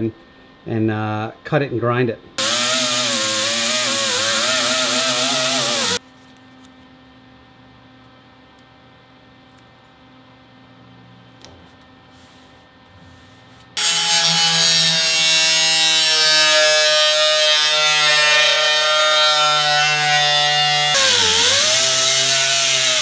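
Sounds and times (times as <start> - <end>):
angle grinder grinding metal: 2.4 - 6.0, 13.8 - 23.0.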